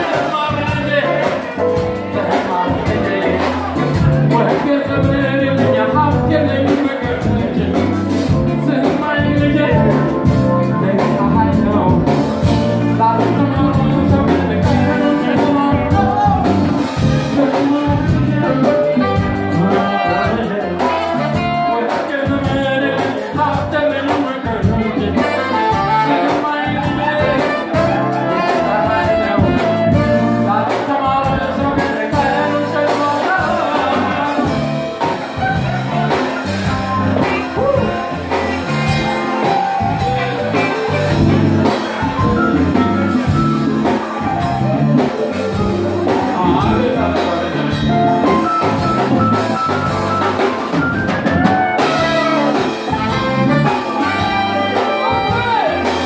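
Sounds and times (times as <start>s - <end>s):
bass guitar: 0.0s - 56.0s
electric guitar: 0.0s - 56.0s
man singing into a microphone: 0.0s - 56.0s
saxophones: 47.6s - 56.0s.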